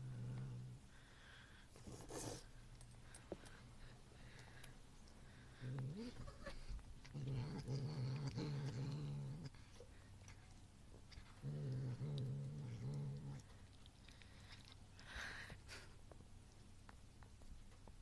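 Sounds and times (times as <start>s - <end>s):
cat growling: 0.0s - 1.0s, 5.3s - 10.4s, 11.0s - 14.8s.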